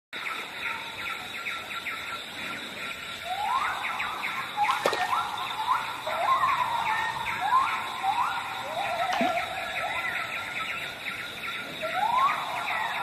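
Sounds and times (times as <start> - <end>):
bird whistling rising notes: 3.3 - 10.8.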